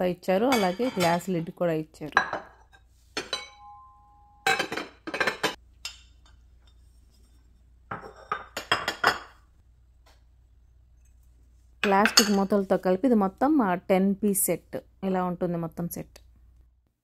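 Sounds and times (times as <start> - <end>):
dishes clattering: 2.2 - 3.8, 4.4 - 6.8, 7.9 - 9.4
ceramic dishes clinking: 2.2 - 6.9, 7.9 - 9.4, 11.8 - 12.5
ringing ceramic tone: 3.2 - 4.9.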